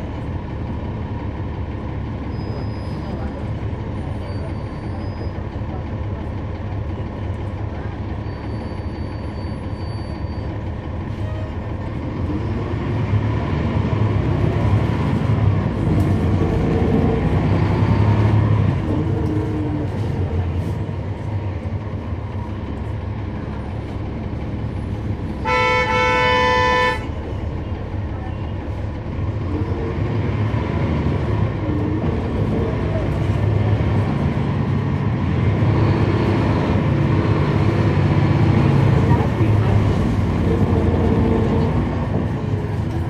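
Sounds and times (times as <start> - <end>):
bus diesel engine: 0.0 - 43.0
vehicle horn blast: 25.4 - 27.1.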